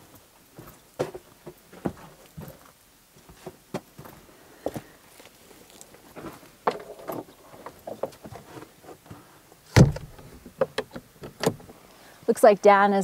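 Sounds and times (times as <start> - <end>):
heavy door thump: 9.8 - 10.2.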